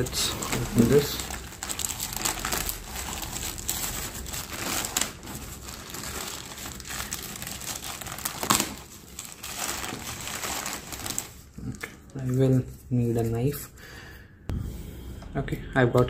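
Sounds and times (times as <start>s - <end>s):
plastic mailer crinkling: 0.0s - 12.5s.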